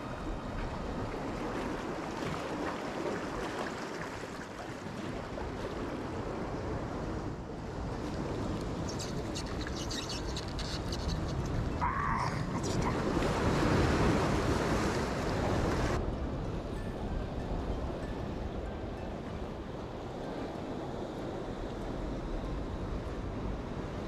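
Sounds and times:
sea water surging among rocks: 0.0 - 16.4.

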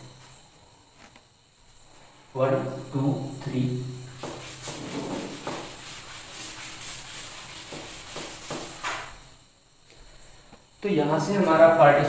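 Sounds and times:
eraser rubbing chalkboard: 4.1 - 9.2.

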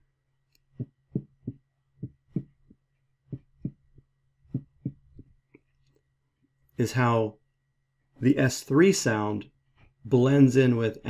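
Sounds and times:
heartbeat gallop thumps: 0.7 - 5.4.

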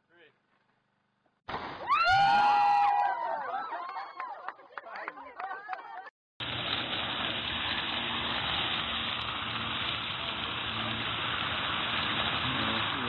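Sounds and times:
fountain jets splashing on pavement: 6.4 - 13.0.

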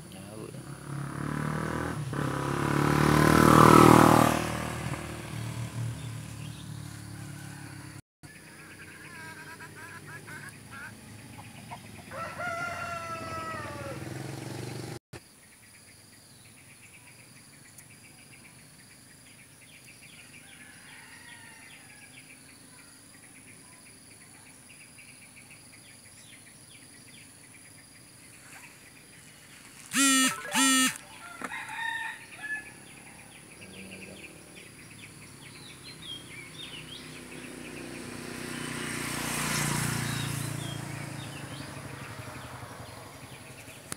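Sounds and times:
rooster crowing: 7.0 - 8.0, 11.3 - 14.3, 20.4 - 22.2, 29.9 - 33.3
chicken calls: 8.4 - 14.0, 29.9 - 32.7.

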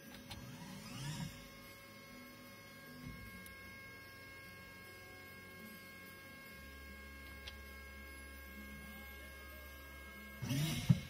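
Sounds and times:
electrical hum: 0.0 - 11.0
high whining electronics: 0.0 - 11.0.

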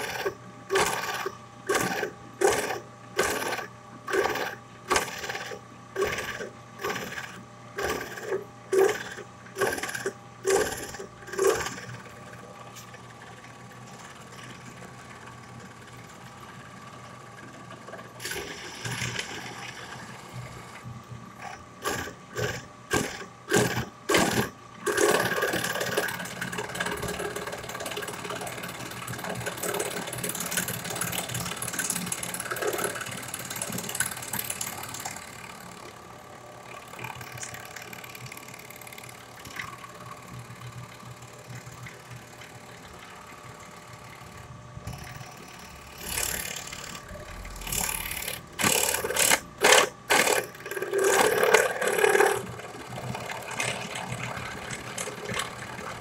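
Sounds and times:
rotary tool cutting wood: 0.0 - 12.1, 21.4 - 26.2, 44.3 - 56.0.

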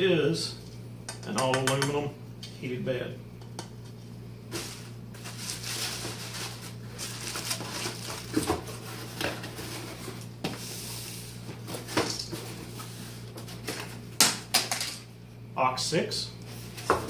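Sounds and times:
bubble wrap and cardboard rustling: 4.5 - 14.0
items knocking in a box: 7.4 - 9.6.

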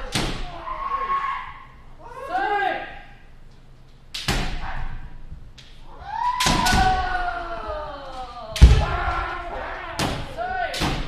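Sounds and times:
person shouting: 0.4 - 3.0.

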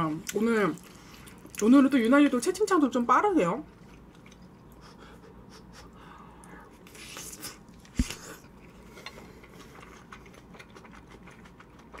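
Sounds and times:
wet chewing: 3.7 - 5.0, 6.8 - 12.0.

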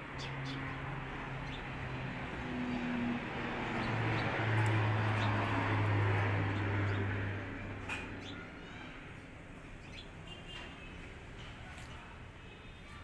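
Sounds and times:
vehicle driving past: 0.0 - 8.6.

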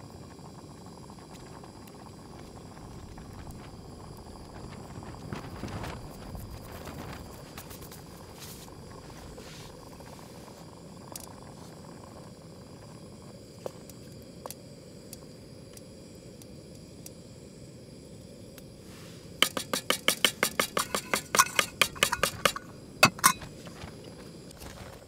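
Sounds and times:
sharp clinks and taps: 19.4 - 23.5.

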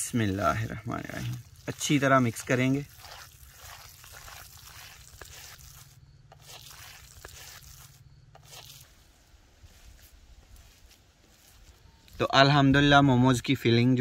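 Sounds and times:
wet squelching of kneaded mince: 0.0 - 9.9
hands scraping clay bowl: 0.2 - 8.9.

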